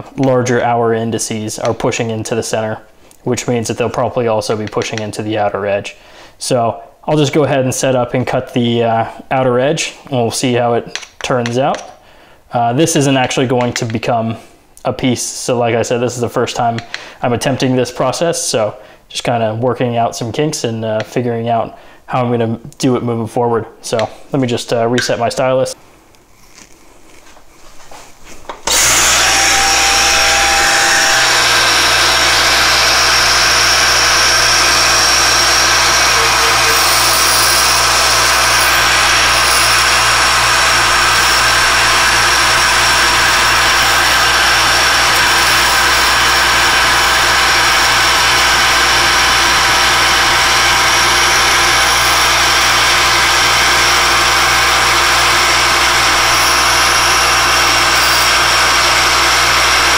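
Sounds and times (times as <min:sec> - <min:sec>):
milling machine cutting metal: 0:28.7 - 0:59.9.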